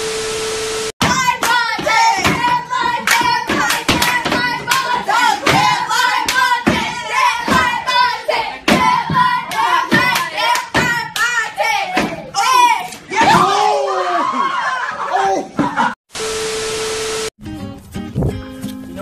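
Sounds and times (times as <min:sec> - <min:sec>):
group of young people singing: 0:01.1 - 0:12.3
hands clapping: 0:01.4 - 0:01.7, 0:03.0 - 0:05.0, 0:06.2 - 0:06.5, 0:09.5 - 0:11.3.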